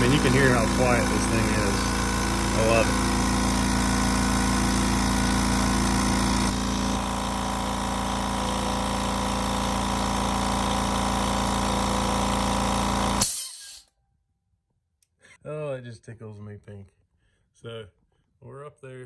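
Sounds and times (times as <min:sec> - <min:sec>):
air compressor running: 0:00.0 - 0:13.8.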